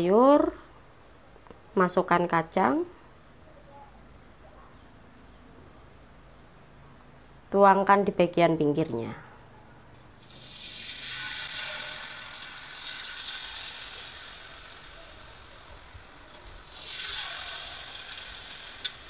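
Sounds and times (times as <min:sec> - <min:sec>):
batter sizzling in hot oil: 0:10.2 - 0:19.0.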